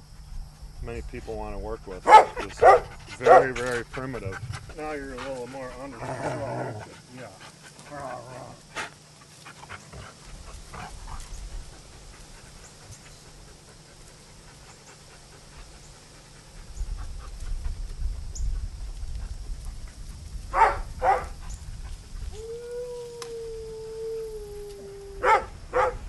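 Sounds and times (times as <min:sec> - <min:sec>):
dog barks: 0:02.0 - 0:03.6, 0:20.5 - 0:21.4, 0:25.2 - 0:26.0
dog howling: 0:22.3 - 0:26.0.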